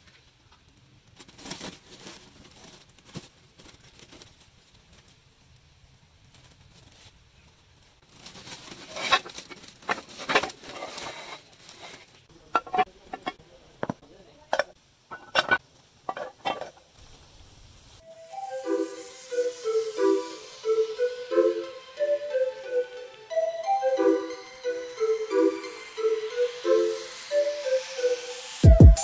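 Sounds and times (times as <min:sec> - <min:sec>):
plastic sack rustling and crinkling: 0:01.0 - 0:13.3
metal cover clinking on hard surface: 0:14.6 - 0:16.8.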